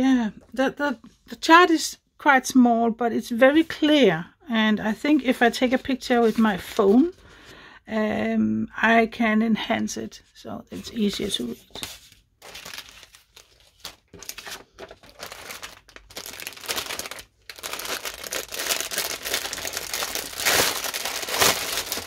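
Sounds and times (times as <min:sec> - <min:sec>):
plastic bag crinkling: 0:11.8 - 0:22.0.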